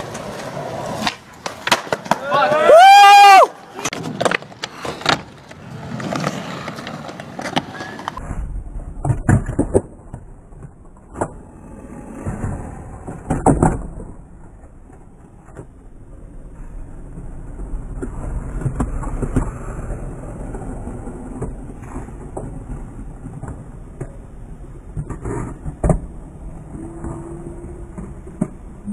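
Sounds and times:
skateboard clacking on ground: 0:00.0 - 0:02.7, 0:03.7 - 0:08.2, 0:09.0 - 0:15.8, 0:24.9 - 0:28.9
skateboard wheels rolling on concrete: 0:00.0 - 0:28.9.

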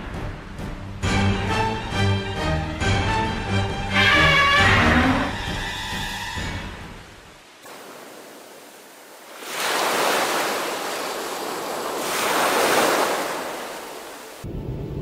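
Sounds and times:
low sea noise: 0:03.7 - 0:15.0
ocean waves washing in: 0:06.0 - 0:15.0.

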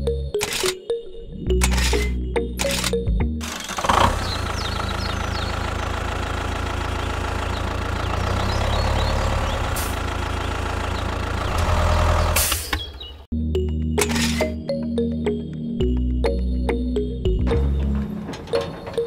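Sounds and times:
tractor diesel engine running: 0:01.6 - 0:13.2, 0:17.0 - 0:19.0.

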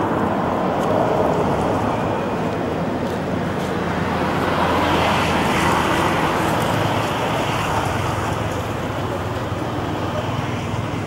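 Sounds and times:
road traffic noise: 0:00.0 - 0:11.0
vehicle passing: 0:00.0 - 0:11.0.

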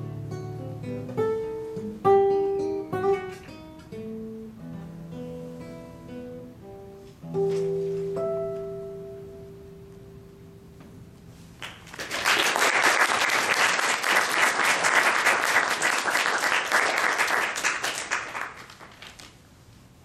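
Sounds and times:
classical guitar note: 0:00.0 - 0:11.6
audience applauding: 0:11.6 - 0:19.3.

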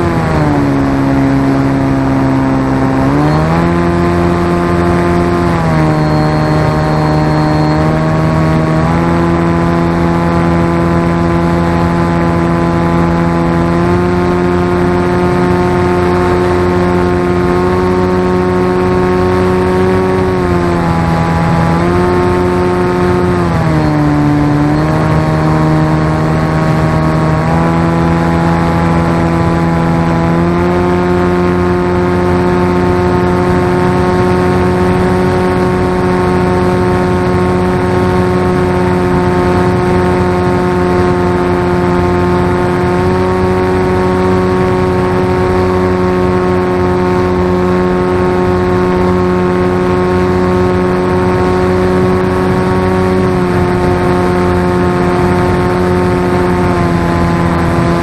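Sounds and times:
model aircraft motor and propeller: 0:00.0 - 0:58.0
airy wind rushing: 0:31.9 - 0:58.0.

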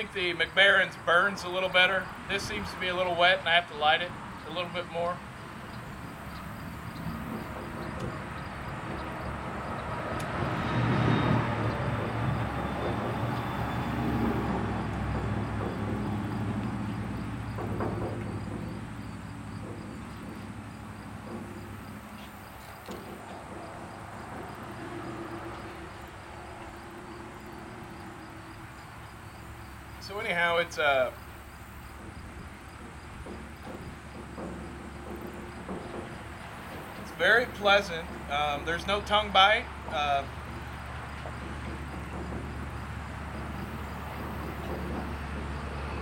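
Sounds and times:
passing vehicle engine rumble: 0:00.0 - 0:46.0
faint knocks: 0:11.8 - 0:29.4, 0:31.2 - 0:39.1, 0:39.7 - 0:46.0.

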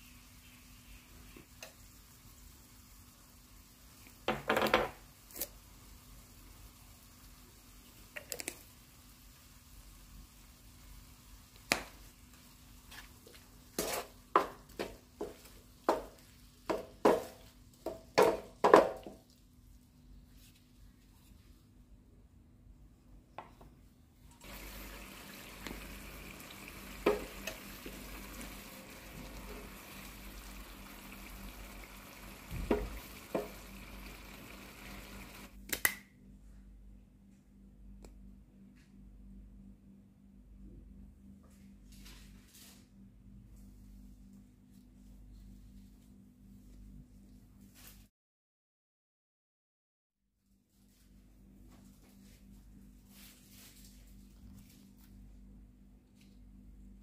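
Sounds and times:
vegetables sizzling in pan: 0:05.0 - 0:17.4, 0:24.4 - 0:35.6
utensil scraping frying pan: 0:13.8 - 0:14.2.

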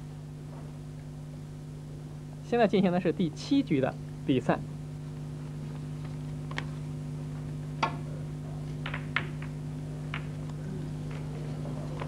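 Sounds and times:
steady low hum: 0:00.0 - 0:12.0
snooker balls clicking: 0:08.8 - 0:11.3.

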